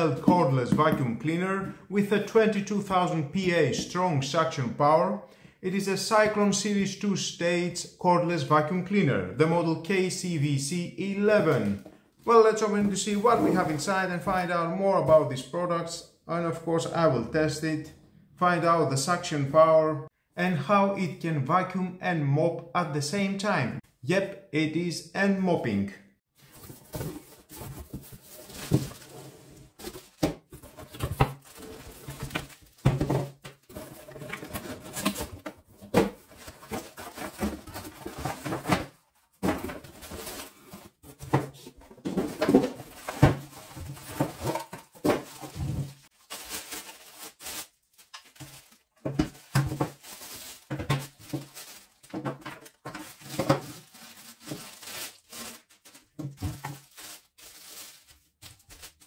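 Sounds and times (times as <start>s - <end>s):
cardboard scraping: 26.4s - 46.1s
plastic wrapping crinkling: 45.2s - 59.0s.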